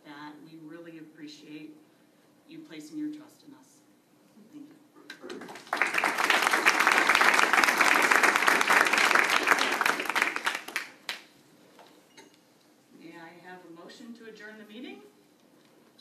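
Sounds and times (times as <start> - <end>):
crowd applauding: 5.2 - 11.3.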